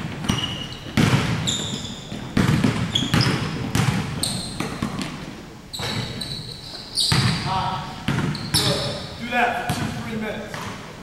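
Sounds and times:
basketballs bouncing on wooden floor: 0:00.0 - 0:06.4, 0:07.0 - 0:10.9
sneaker squeaks: 0:00.1 - 0:10.8.

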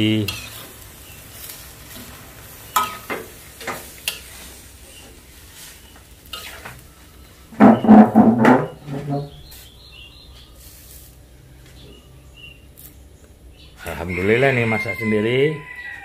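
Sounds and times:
faint sizzle: 0:00.0 - 0:07.6, 0:09.1 - 0:14.1
metal spatula scraping wok: 0:00.3 - 0:04.8, 0:05.6 - 0:06.8, 0:07.6 - 0:09.4.

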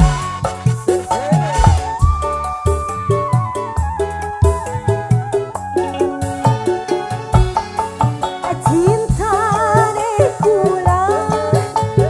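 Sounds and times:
bamboo flute melody: 0:00.0 - 0:08.9
bass: 0:00.0 - 0:12.0
hand drums: 0:00.0 - 0:12.0
keyboard: 0:00.0 - 0:12.0.

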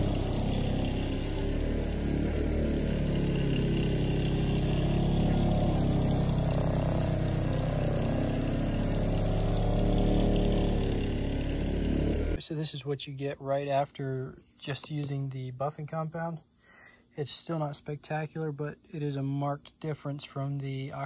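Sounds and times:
electric buffer humming: 0:00.0 - 0:12.4.

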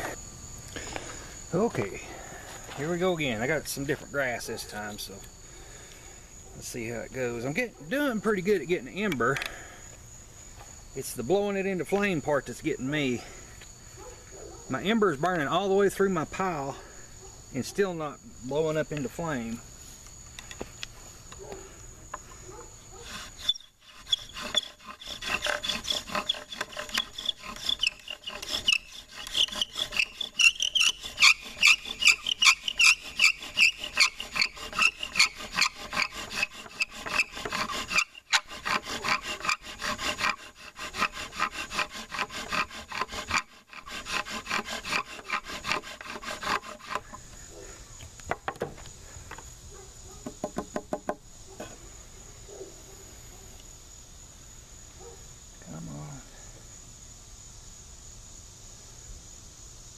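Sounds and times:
bow drill grinding and squeaking: 0:23.0 - 0:47.5.

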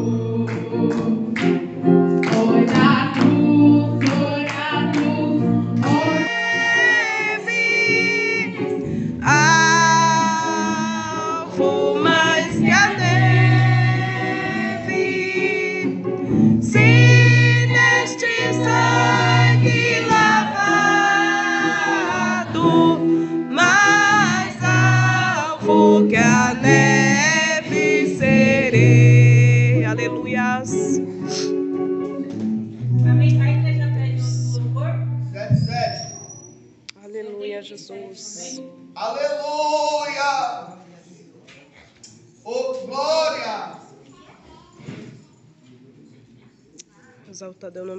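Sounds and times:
woman singing gospel song: 0:00.0 - 0:01.5, 0:02.1 - 0:16.0, 0:16.6 - 0:31.4, 0:37.1 - 0:38.7
instrumental accompaniment: 0:00.0 - 0:36.0, 0:38.2 - 0:39.0
deep bass notes: 0:28.2 - 0:31.0, 0:32.6 - 0:36.0.

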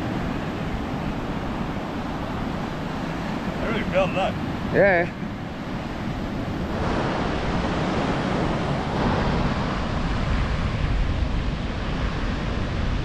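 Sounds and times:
surf breaking on a beach: 0:00.0 - 0:13.0
wind buffeting the microphone: 0:00.0 - 0:13.0.

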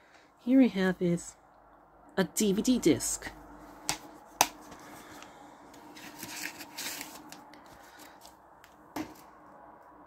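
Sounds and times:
plastic case rustling: 0:05.8 - 0:07.5.

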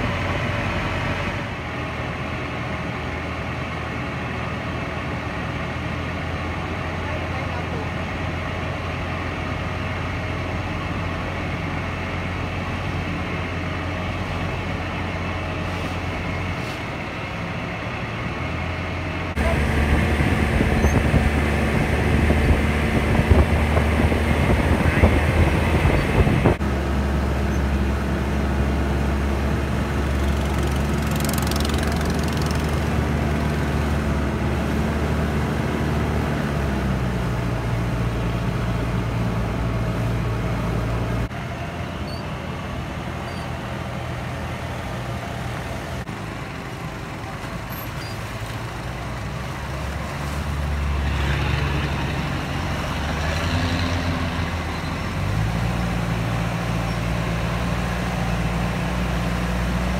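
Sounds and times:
motorboat engine droning: 0:00.0 - 0:59.9
wind: 0:00.0 - 0:59.9
rushing water: 0:46.1 - 0:59.9.

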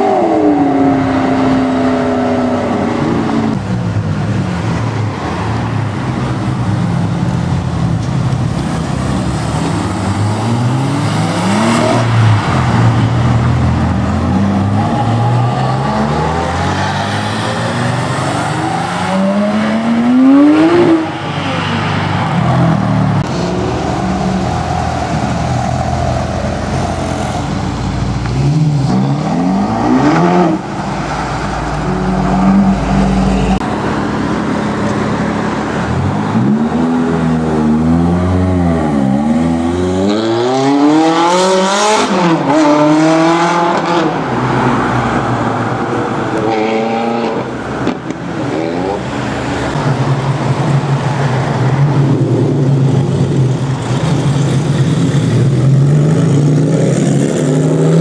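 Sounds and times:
car engines accelerating hard: 0:00.0 - 0:58.0
road and traffic noise: 0:00.0 - 0:58.0.

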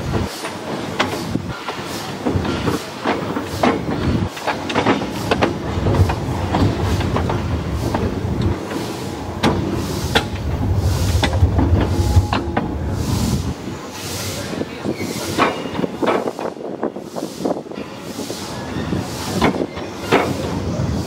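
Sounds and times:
wheels clicking over rail joints: 0:00.0 - 0:12.7
steam locomotive running: 0:00.0 - 0:21.0.

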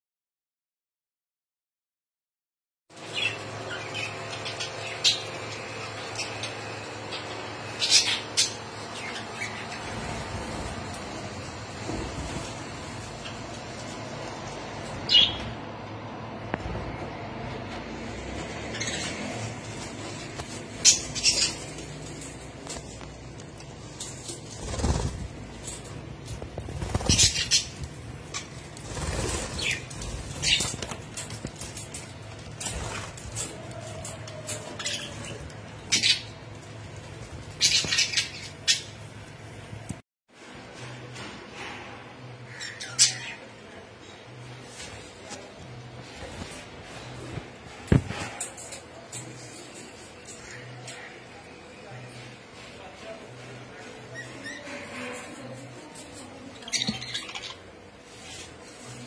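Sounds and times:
budgerigars chirping: 0:07.7 - 0:09.8.

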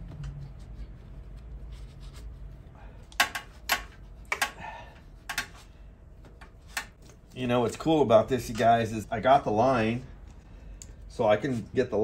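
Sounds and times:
low steady hum: 0:00.0 - 0:12.0
metal parts clicking and tapping: 0:03.1 - 0:04.6.

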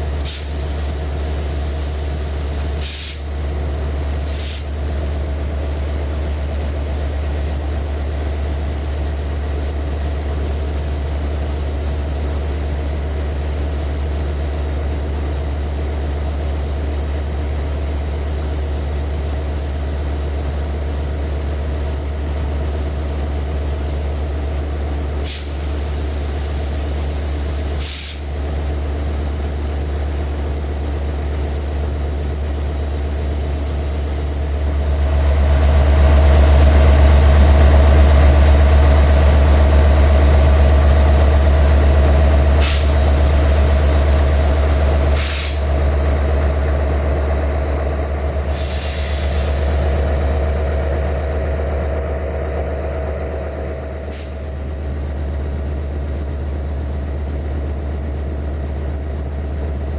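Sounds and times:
diesel locomotive engine idling: 0:00.0 - 0:59.9
air hisses: 0:00.2 - 0:03.3, 0:04.3 - 0:04.8, 0:25.2 - 0:28.3, 0:42.6 - 0:45.7, 0:48.5 - 0:49.8, 0:54.0 - 0:54.6.

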